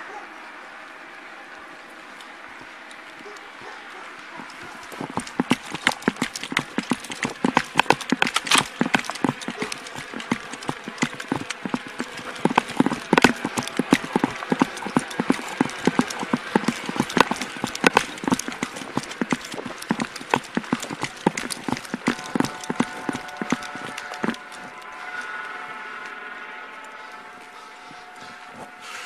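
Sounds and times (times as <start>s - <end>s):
running footsteps on pavement: 4.4s - 24.8s.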